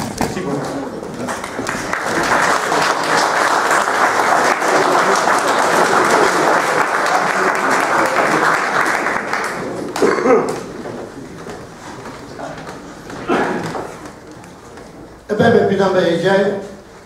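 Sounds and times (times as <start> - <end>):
audience applauding: 0.4 - 10.9.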